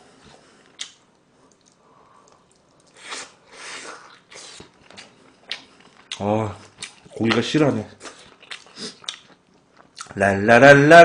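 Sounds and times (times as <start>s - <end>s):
person chewing meat off bone: 8.0s - 10.1s.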